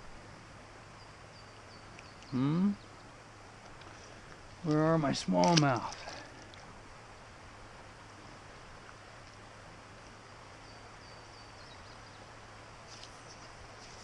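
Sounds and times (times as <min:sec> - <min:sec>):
faint steady hiss: 0:00.0 - 0:14.0
faint high bird chirps: 0:01.0 - 0:03.1.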